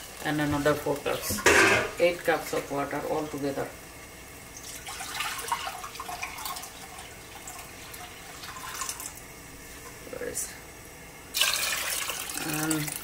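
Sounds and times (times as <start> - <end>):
water running and splashing: 4.5 - 9.3, 11.3 - 13.0.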